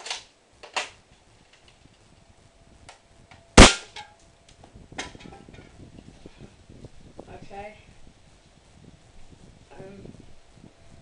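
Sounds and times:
airsoft gun shot: 3.6s - 4.0s.

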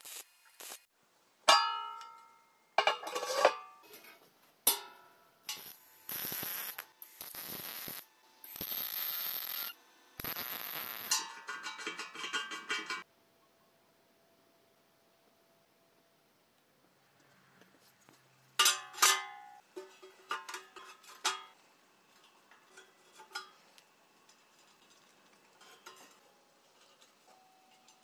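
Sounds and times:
arc welder crackling hiss: 0.0s - 0.9s, 5.4s - 11.3s.

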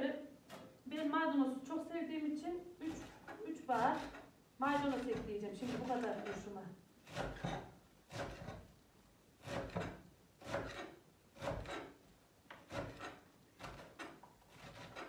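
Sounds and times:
knife chopping on wooden board: 4.8s - 6.4s, 7.1s - 8.6s, 9.4s - 11.9s, 12.6s - 15.0s.

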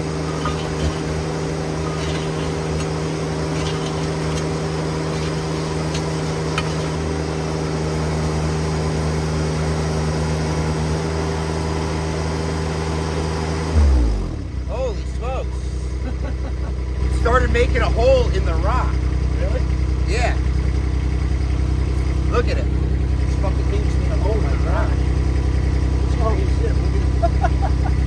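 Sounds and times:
auger drilling rocky ground: 0.0s - 7.5s
skid steer engine under load: 0.0s - 28.0s.

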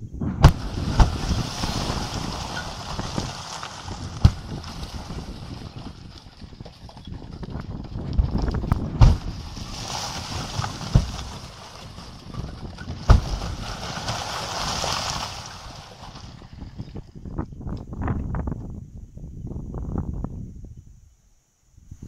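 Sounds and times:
blasting charges booming: 0.0s - 6.0s, 8.7s - 16.1s.

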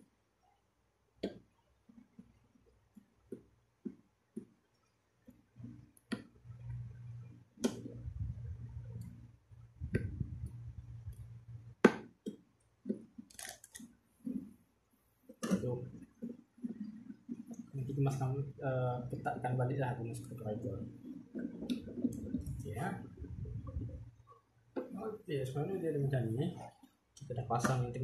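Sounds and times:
low rubbing noise: 17.8s - 24.1s.

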